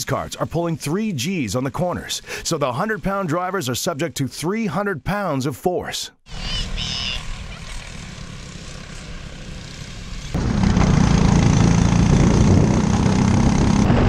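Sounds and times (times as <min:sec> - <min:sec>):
kart engines high-revving drone: 0:06.7 - 0:14.0.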